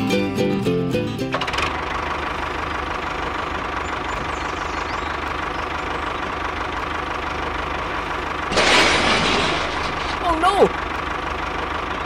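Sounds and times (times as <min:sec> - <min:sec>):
model tractor engine chugging: 0:01.3 - 0:08.5.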